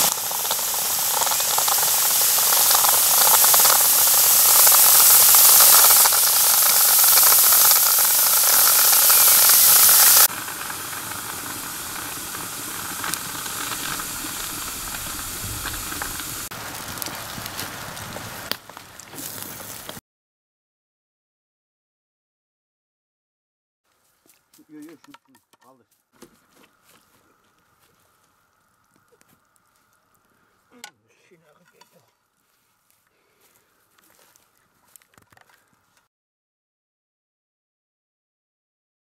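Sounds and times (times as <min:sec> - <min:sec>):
hot water running into metal teapot: 0:00.0 - 0:20.0.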